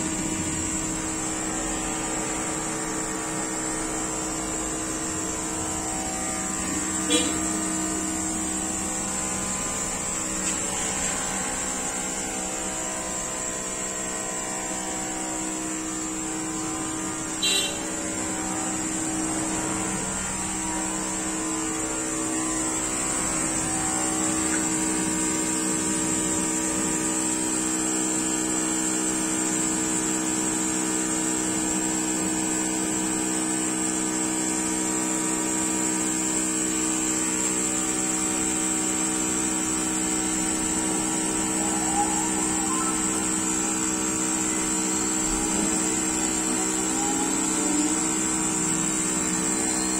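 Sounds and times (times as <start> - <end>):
router spindle cutting wood: 39.9 - 49.9.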